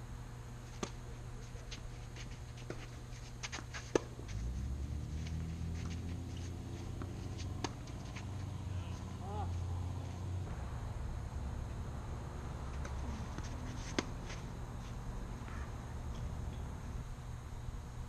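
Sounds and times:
low steady rumble: 0.0 - 18.0
tennis racket hitting ball: 2.7 - 4.4, 5.1 - 9.3, 12.7 - 14.5.

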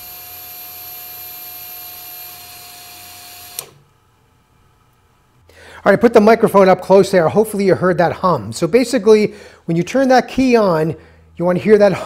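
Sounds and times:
electric fuel pump humming: 0.0 - 4.0.

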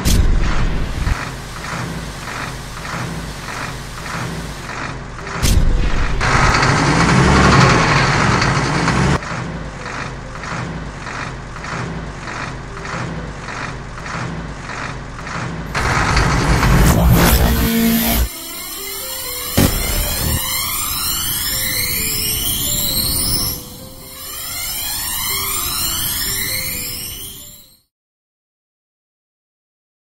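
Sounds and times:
even rhythmic pulse: 15.7 - 26.4
jet thruster rush: 15.7 - 26.4.

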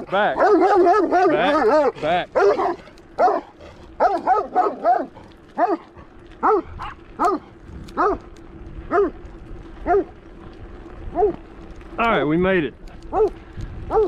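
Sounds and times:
dog barking: 0.2 - 8.2, 8.9 - 9.2, 9.8 - 10.1, 11.1 - 11.4, 13.1 - 14.0.

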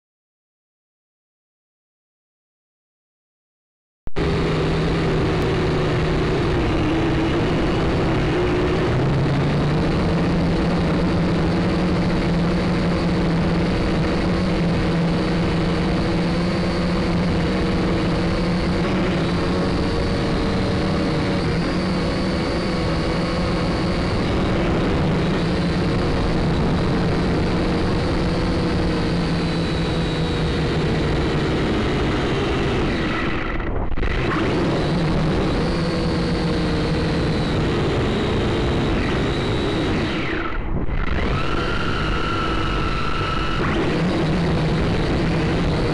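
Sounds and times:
toy drone propellers buzzing: 41.2 - 45.7.

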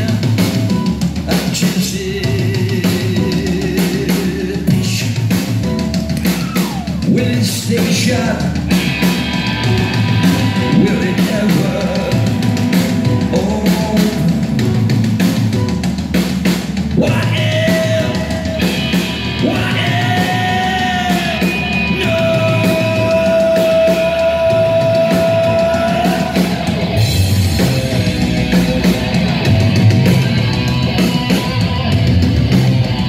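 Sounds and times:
male singer: 0.0 - 8.7, 10.4 - 14.8, 16.9 - 26.9
rock band playing: 0.0 - 33.0.

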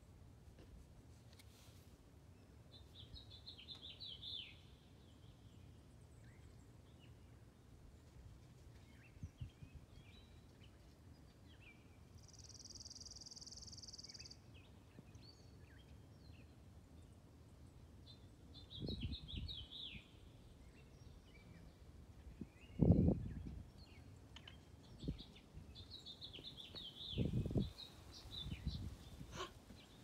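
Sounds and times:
birds chirping: 22.6 - 30.0.

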